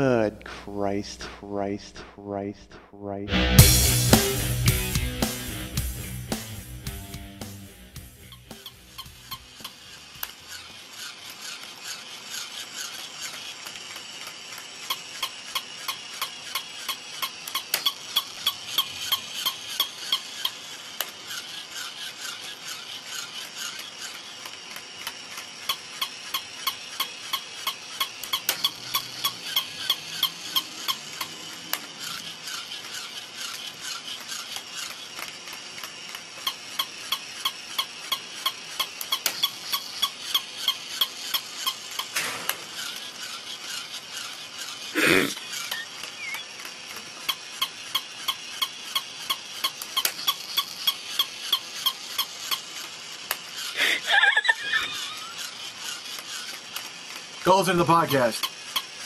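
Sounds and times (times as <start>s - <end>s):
toy mechanism clicking: 5.2s - 59.0s
squeaky toy yapping: 45.4s - 46.5s.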